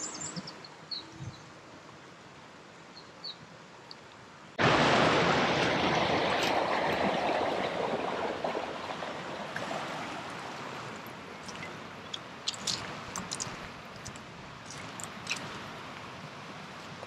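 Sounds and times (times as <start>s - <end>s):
river water rushing over rapids: 4.4s - 17.0s.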